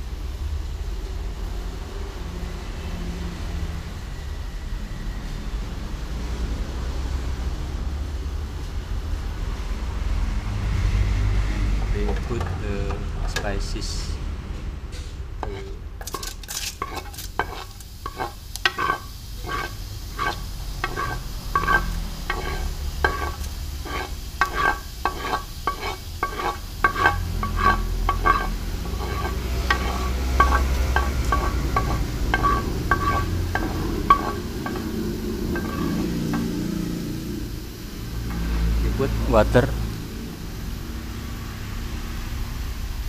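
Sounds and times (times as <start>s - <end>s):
stone pestle tapping metal pan: 15.4s - 36.6s
food scraped into saucepan: 15.4s - 36.8s.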